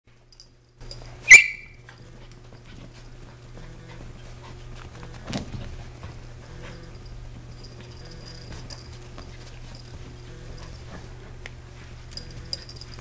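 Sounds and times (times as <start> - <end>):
dog yelping: 1.3 - 1.8.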